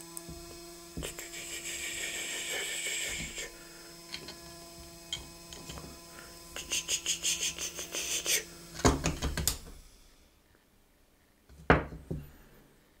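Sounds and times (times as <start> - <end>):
small motor spinning propeller: 0.2 - 8.8.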